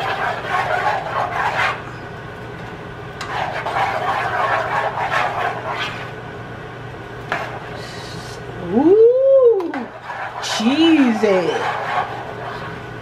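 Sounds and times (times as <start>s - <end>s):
spoon scraping a metal pot: 0.0s - 1.9s, 3.2s - 6.1s, 9.9s - 12.8s.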